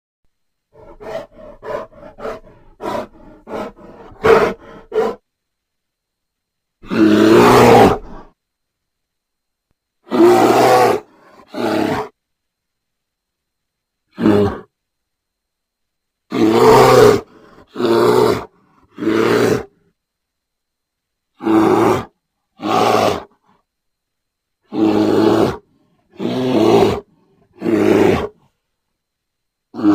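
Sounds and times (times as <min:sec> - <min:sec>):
animal grunts: 0:00.7 - 0:05.2, 0:24.7 - 0:28.5
animal growling roar: 0:06.8 - 0:08.3, 0:10.1 - 0:12.1, 0:16.3 - 0:19.8, 0:21.4 - 0:23.3, 0:24.7 - 0:28.4.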